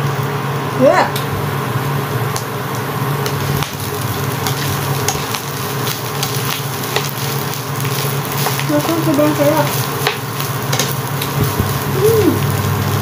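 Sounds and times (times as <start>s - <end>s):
rice sizzling in frying pan: 0.0s - 13.0s.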